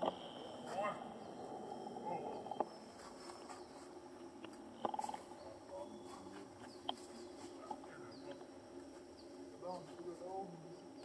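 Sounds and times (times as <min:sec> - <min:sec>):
rapidly pulsed animal call: 0:00.0 - 0:02.9.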